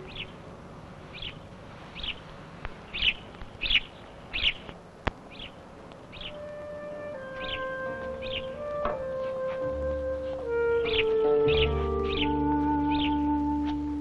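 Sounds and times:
small bird chirping: 0.0 - 0.4, 1.0 - 6.4, 7.4 - 8.5, 10.8 - 13.2
soft woodwind music: 0.0 - 0.4, 6.2 - 14.0.

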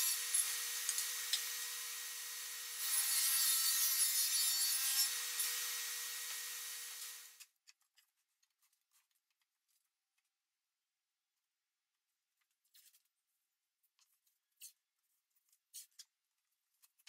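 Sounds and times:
table saw cutting wood: 0.0 - 7.4.

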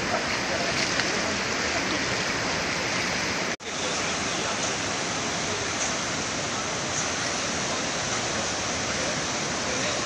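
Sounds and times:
flooded river rushing: 0.0 - 10.0.

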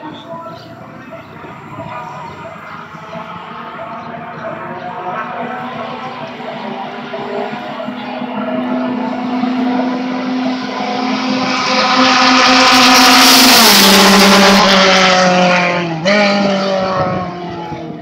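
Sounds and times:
race car engines passing: 0.0 - 18.0.

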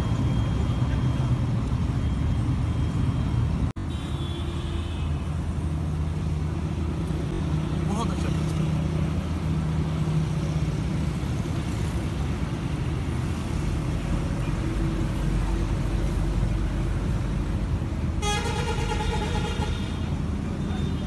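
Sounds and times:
passing cars rumble: 5.2 - 21.0.

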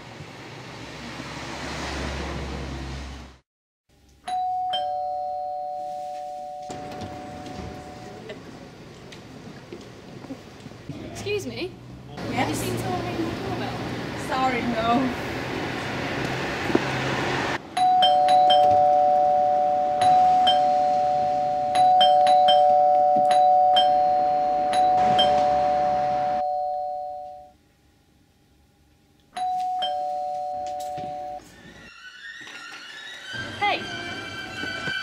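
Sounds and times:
two-note doorbell chime: 4.3 - 8.2, 17.8 - 27.5, 29.4 - 31.4.

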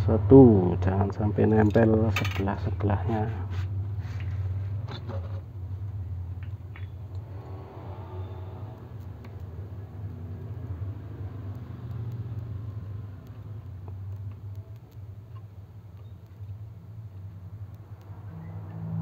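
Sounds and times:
low hum: 3.4 - 19.0
faint clicks: 8.3 - 18.7.

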